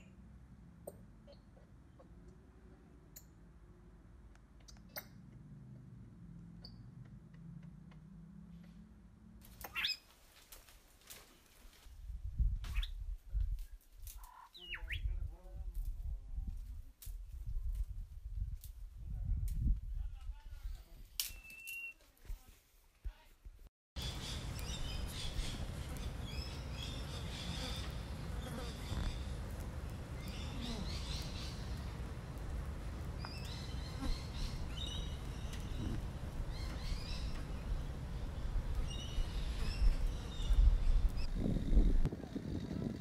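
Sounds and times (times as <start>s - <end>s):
low wind rumble: 15.0s - 20.7s, 24.0s - 43.0s
insects buzzing: 24.0s - 40.8s
birds chirping: 24.0s - 42.0s.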